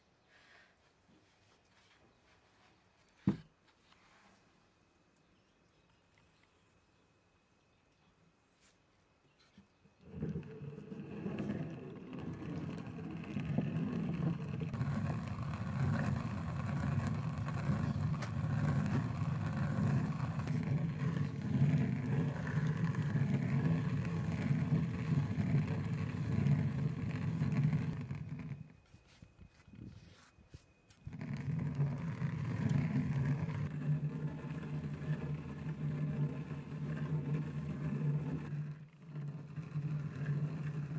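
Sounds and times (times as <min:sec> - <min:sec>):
stone quern grinding: 0:10.0 - 0:29.3, 0:30.9 - 0:40.9.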